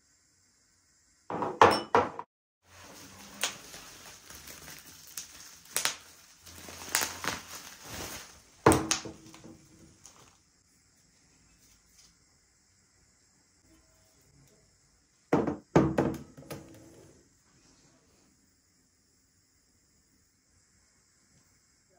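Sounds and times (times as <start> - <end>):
glassware clinking: 1.3 - 2.2
bubble wrap rustling and crackling: 2.7 - 10.4.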